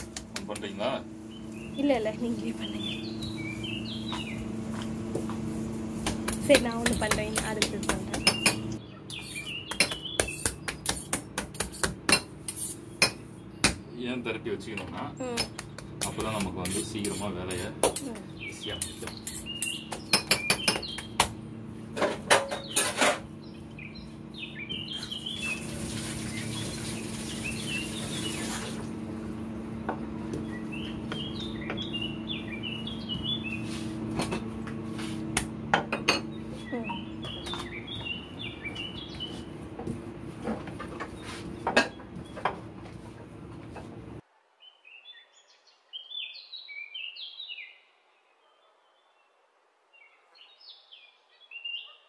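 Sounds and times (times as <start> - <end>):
hands slapping dough: 0.0 - 0.8, 6.0 - 8.7, 9.7 - 12.2, 15.4 - 17.2, 35.0 - 35.6
small birds chirping: 0.0 - 11.0, 13.2 - 21.8, 22.5 - 28.9, 30.2 - 34.1, 36.2 - 40.0, 40.8 - 42.5, 44.6 - 52.0
steady low hum: 0.0 - 44.2.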